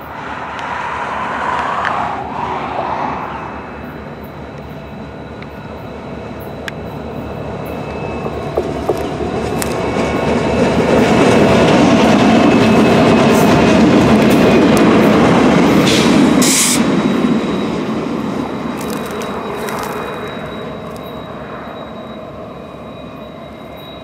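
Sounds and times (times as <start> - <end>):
diesel locomotive engine rumble: 0.0 - 24.0
wheels clicking over rail joints: 7.6 - 16.0, 18.2 - 21.2.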